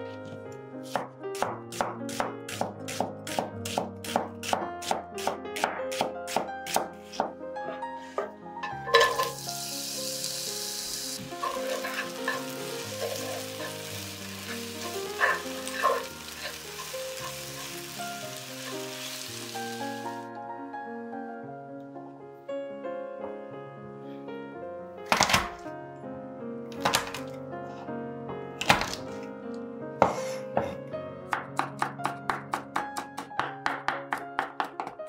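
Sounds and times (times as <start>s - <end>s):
soft piano music: 0.0s - 35.0s
knife chopping onion on wooden board: 0.8s - 7.4s, 30.0s - 35.0s
onion sizzling in frying pan: 8.6s - 20.3s.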